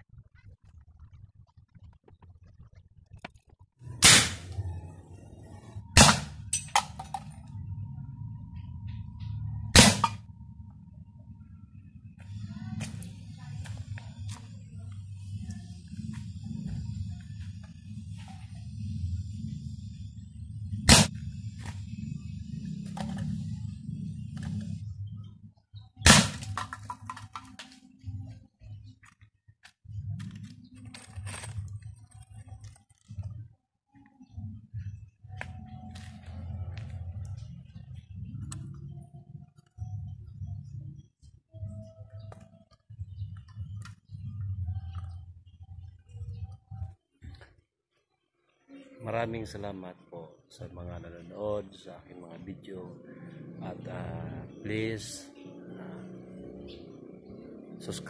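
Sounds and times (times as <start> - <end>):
steady low hum: 0.0 - 27.0
air rifle shots: 4.0 - 4.5, 6.0 - 6.4, 9.8 - 10.2, 20.9 - 21.2, 26.0 - 26.5.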